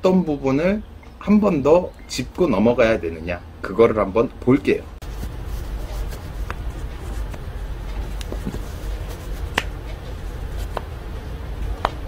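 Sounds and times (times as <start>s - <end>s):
low background rumble: 2.9s - 12.0s.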